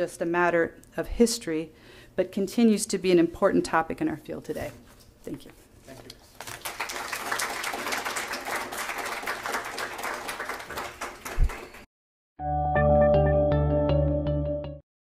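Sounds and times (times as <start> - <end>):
audience applauding: 6.4 - 11.9
music: 12.4 - 14.8.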